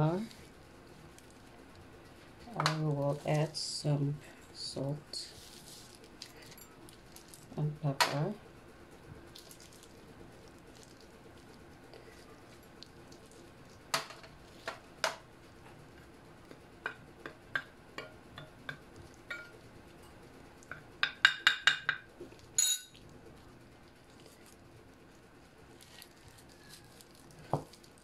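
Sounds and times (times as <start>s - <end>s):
utensil clinking on ceramic plate: 22.6s - 23.0s.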